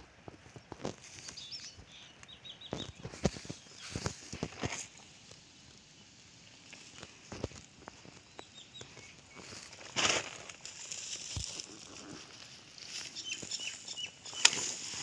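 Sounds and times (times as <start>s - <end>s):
footsteps on dry grass: 2.7s - 5.5s, 6.3s - 15.0s.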